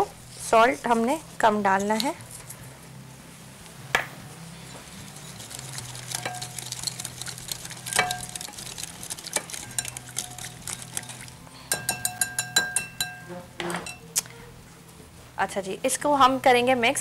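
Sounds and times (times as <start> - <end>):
utensil stirring thick marinade: 4.6 - 13.3
utensil clinking glass bowl: 4.7 - 14.0.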